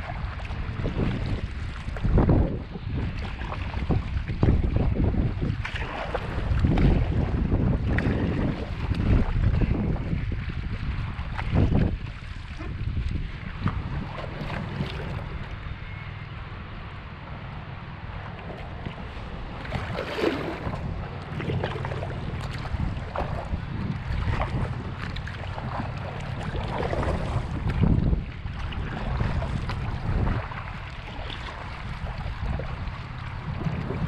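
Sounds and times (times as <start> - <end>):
water splashing around kayak: 0.0 - 34.0
wind buffeting microphone: 0.0 - 34.0.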